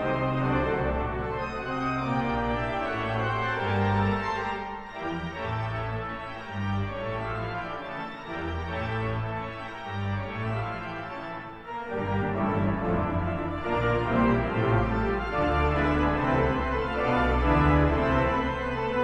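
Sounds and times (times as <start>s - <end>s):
pipe organ sustained chords: 0.0s - 19.0s.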